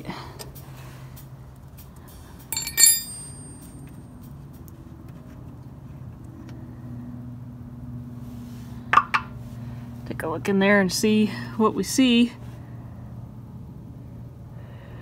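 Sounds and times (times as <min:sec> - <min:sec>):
metal tool clinking on plug: 0:02.5 - 0:03.7.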